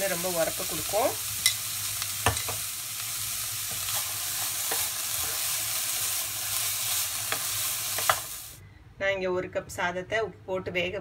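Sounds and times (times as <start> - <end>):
vegetables sizzling in oil: 0.0 - 8.6
spatula tapping and scraping pan: 4.6 - 5.0, 7.3 - 8.3.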